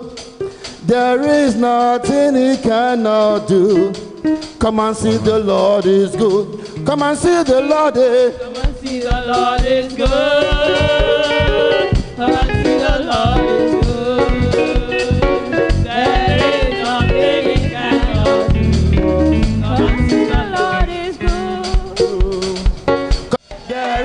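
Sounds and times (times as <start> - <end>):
drum kit beat: 0.0 - 24.0
guitar: 0.0 - 24.0
voices singing: 4.7 - 22.8, 23.6 - 24.0
heavy bass notes: 4.8 - 6.9, 10.8 - 22.4.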